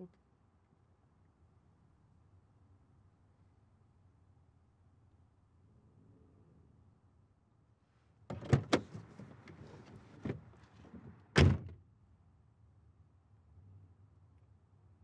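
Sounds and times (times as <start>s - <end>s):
car door latch clicks: 8.3s - 11.7s
person getting out of car: 8.3s - 11.7s
car door slamming: 8.3s - 11.8s.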